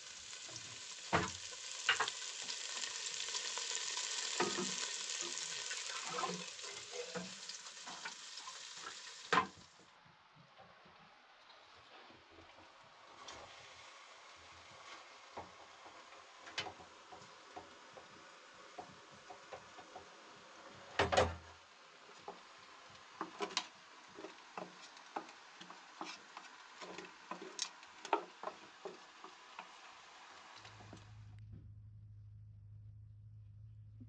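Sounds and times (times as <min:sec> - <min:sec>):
building work knocks and clatter: 0:14.6 - 0:21.6, 0:23.2 - 0:29.8.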